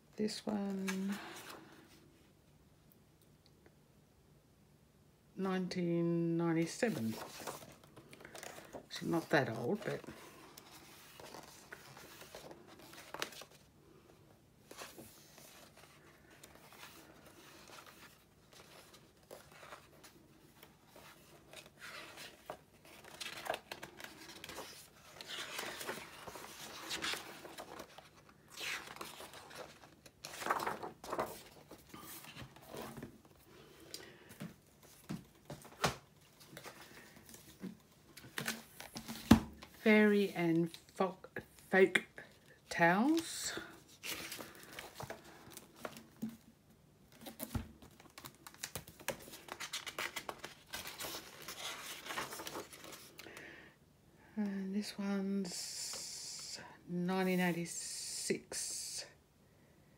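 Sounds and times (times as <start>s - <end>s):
book pages turning: 6.8s - 13.7s, 14.6s - 39.8s, 43.9s - 46.4s, 47.1s - 53.3s.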